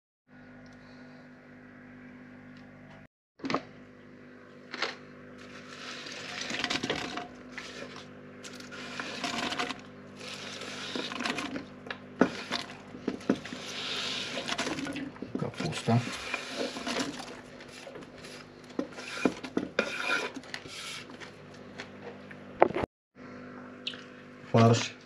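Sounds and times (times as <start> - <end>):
steady low hum: 0.3 - 25.0
cabbage rustling and scraping: 5.4 - 11.6, 12.2 - 21.4.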